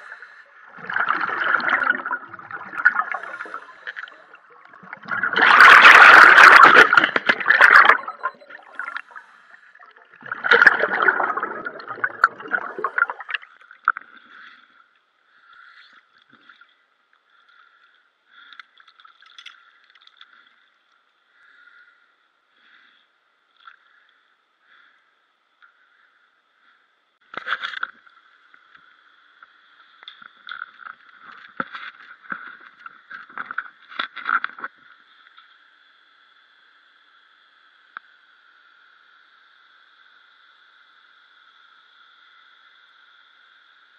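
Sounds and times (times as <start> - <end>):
underwater exhaust bubbles: 0.0 - 14.1
faint patchy hiss: 19.5 - 43.9.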